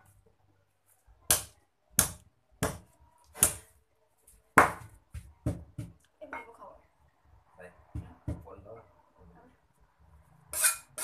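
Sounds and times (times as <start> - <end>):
cleaver chopping on wooden block: 1.3 - 3.6.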